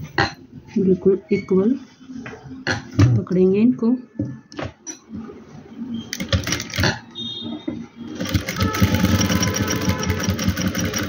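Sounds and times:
sewing machine stitching: 6.1 - 7.0, 8.1 - 11.0.

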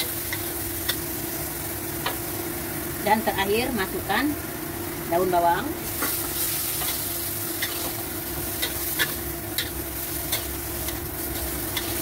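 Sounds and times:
vegetables sizzling in a wok: 0.0 - 12.0
metal spatula scraping a wok: 5.9 - 12.0.

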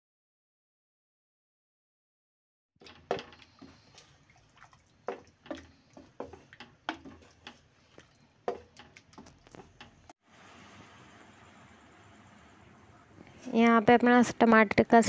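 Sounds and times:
thick sauce bubbling and popping: 2.8 - 10.2.

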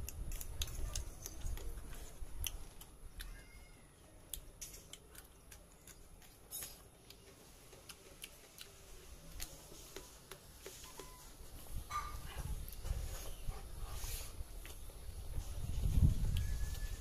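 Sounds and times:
chewing clicks: 0.0 - 3.5, 4.2 - 11.1.

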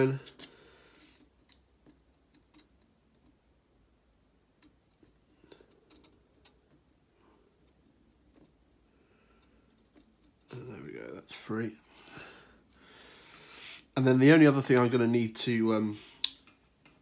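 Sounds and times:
small clicks and ticks: 0.2 - 3.4, 4.5 - 7.0.

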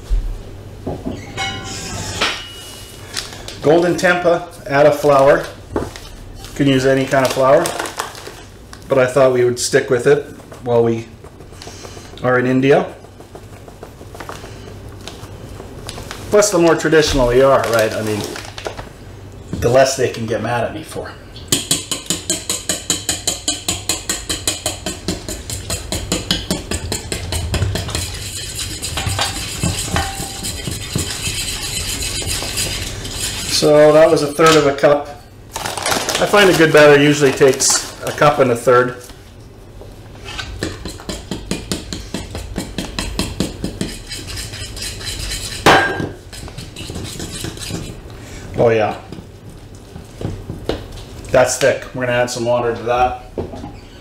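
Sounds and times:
batter stirring: 8.9 - 18.6, 21.5 - 34.9, 40.1 - 51.4.

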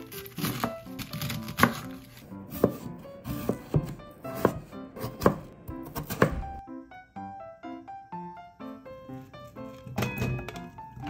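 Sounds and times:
background music: 0.0 - 11.0
knife chopping on wooden board: 0.2 - 6.6.

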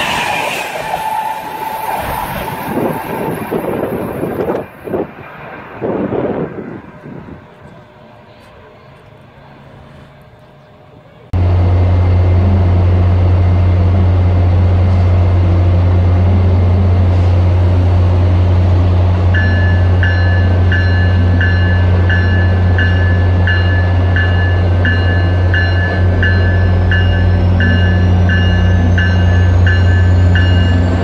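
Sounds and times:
diesel locomotive droning: 0.0 - 31.0
locomotive bell ringing: 18.8 - 31.0.

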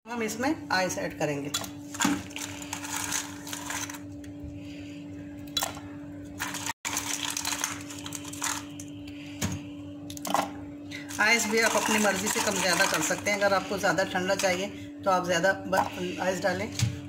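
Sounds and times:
steady low hum: 0.1 - 17.0
ice cubes clinking into glass jar: 2.2 - 4.0, 6.4 - 8.8, 11.1 - 13.4.

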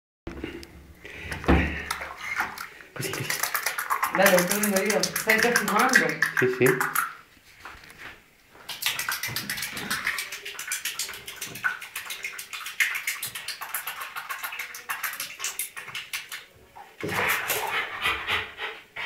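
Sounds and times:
bathwater splashing: 1.2 - 7.2, 8.6 - 17.9.

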